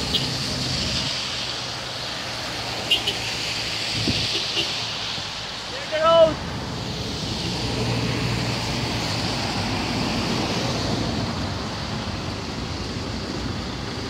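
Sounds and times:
road and wind noise: 0.0s - 14.0s.

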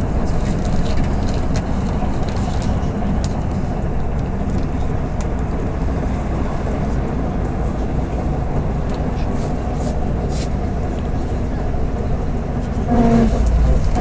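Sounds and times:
bus engine and road drone: 0.0s - 14.0s
faint rattles and clicks: 0.3s - 5.5s.

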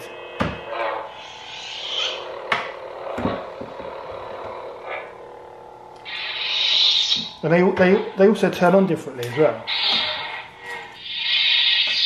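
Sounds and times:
steady electric hum: 0.0s - 12.0s.

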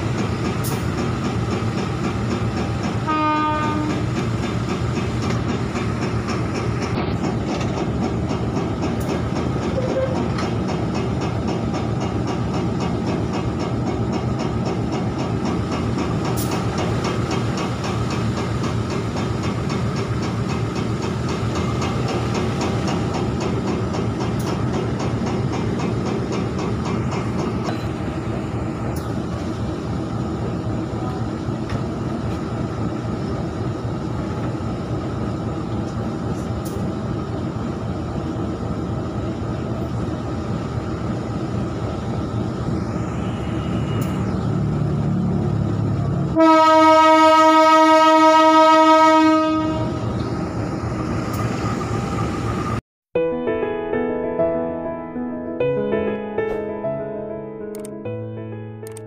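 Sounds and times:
diesel locomotive engine running: 0.0s - 52.8s
loud train horn blast: 3.0s - 4.1s, 43.1s - 44.2s, 46.3s - 50.0s.

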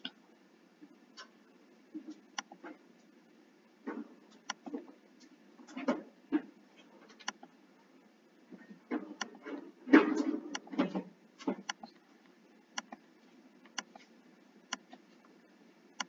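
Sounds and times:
computer mouse clicking: 2.4s - 2.6s, 4.4s - 4.8s, 7.2s - 7.5s, 10.5s - 10.7s, 11.6s - 13.0s, 13.6s - 14.1s, 14.7s - 15.0s.

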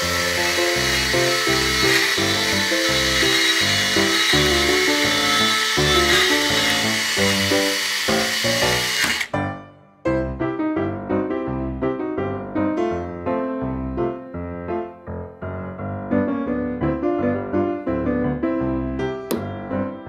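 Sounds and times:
small chainsaw cutting wood: 0.0s - 9.4s
background music: 0.0s - 20.0s.

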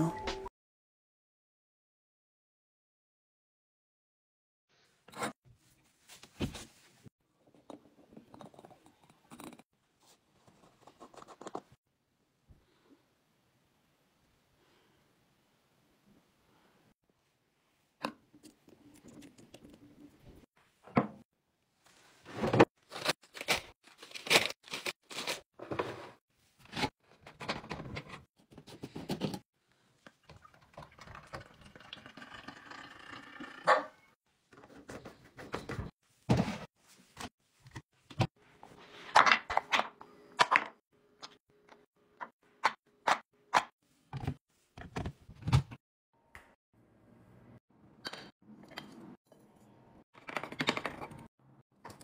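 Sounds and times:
liquid pouring into glass carafe: 30.2s - 33.6s.

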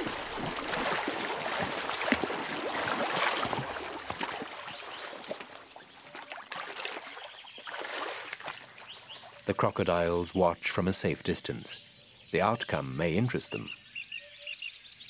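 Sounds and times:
water splashing and churning: 0.0s - 9.6s.

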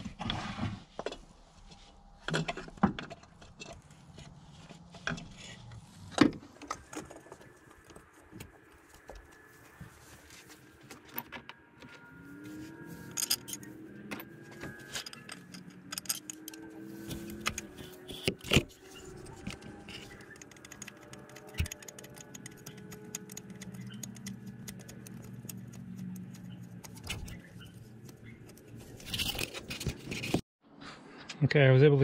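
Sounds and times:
metal clinks of tools and bolts: 13.1s - 13.7s, 15.0s - 16.7s.

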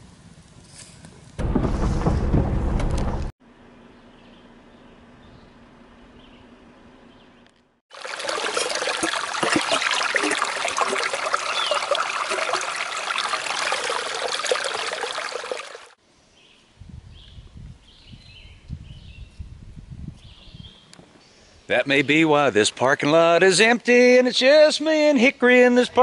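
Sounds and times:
stream water rushing: 7.9s - 16.0s.

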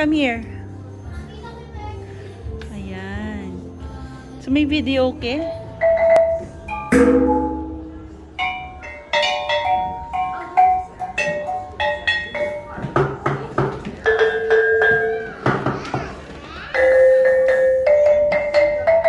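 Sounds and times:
gongs struck with sticks: 6.9s - 8.0s.

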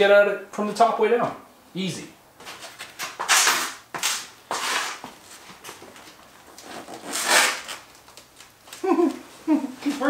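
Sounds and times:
metal chassis scraping on concrete: 2.5s - 5.1s.

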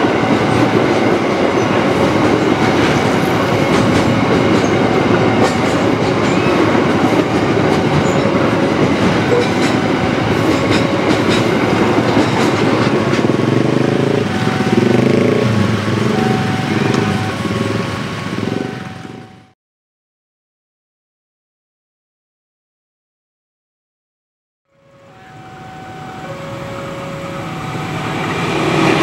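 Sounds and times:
train wheels rumbling on rails: 0.0s - 19.5s, 25.0s - 29.0s
motorcycle engines revving: 12.5s - 19.3s.

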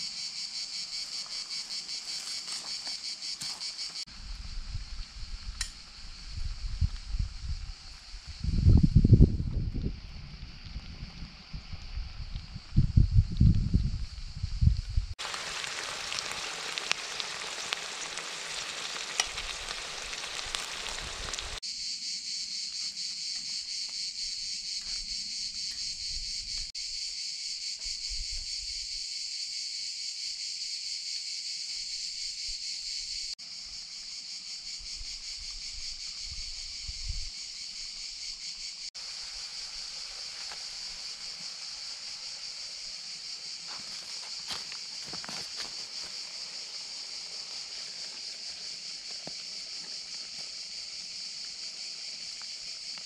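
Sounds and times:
insects buzzing: 0.0s - 53.0s
food sizzling in a skillet: 15.1s - 21.6s, 38.9s - 53.0s
tomatoes poured into skillet: 15.2s - 21.6s.

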